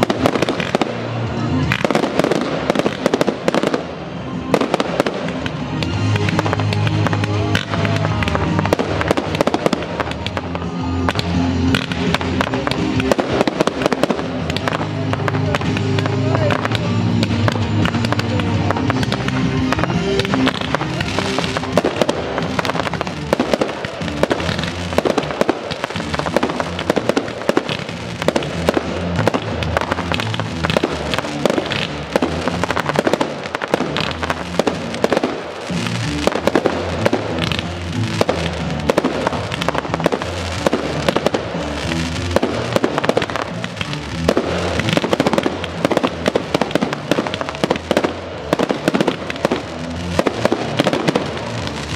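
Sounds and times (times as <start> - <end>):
fireworks bangs and pops: 0.0 - 51.9
music soundtrack: 0.0 - 51.9.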